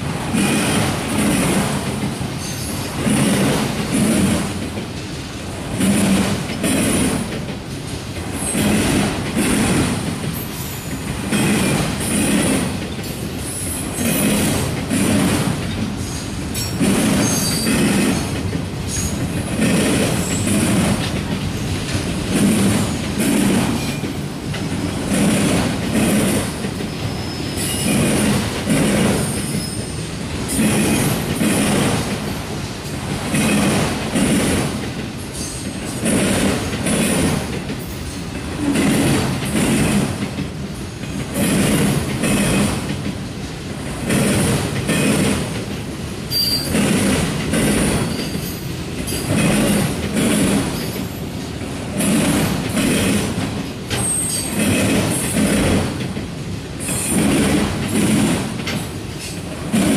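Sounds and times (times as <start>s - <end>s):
train wheels clattering on rails: 0.0s - 59.9s
high-pitched wheel squeals: 46.3s - 46.8s.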